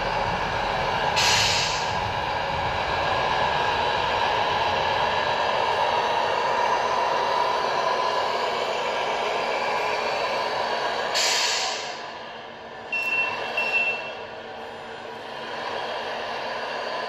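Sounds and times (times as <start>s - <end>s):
air-brake hiss: 1.1s - 2.1s, 11.0s - 12.2s
short beeps: 12.9s - 14.2s.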